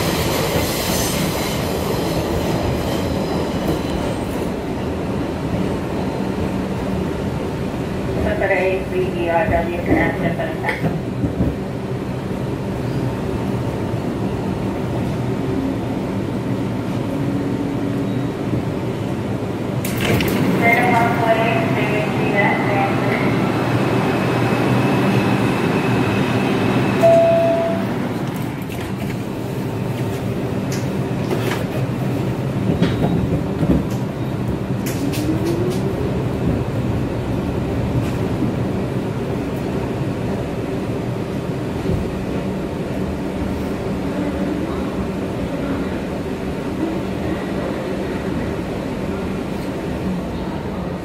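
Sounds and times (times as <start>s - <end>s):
subway train rumbling: 0.0s - 51.0s
sharp clicks from rails: 30.0s - 31.8s, 34.8s - 36.0s.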